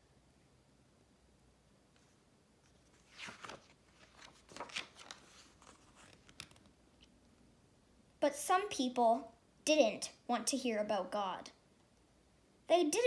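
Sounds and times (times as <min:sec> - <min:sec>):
book pages rustling: 0:01.9 - 0:07.1.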